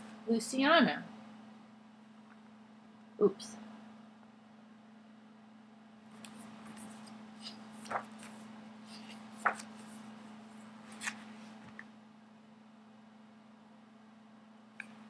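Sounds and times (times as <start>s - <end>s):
steady low hum: 0.0s - 15.0s
book pages rustling: 6.1s - 11.9s
page flaps: 6.2s - 10.2s, 10.8s - 11.8s.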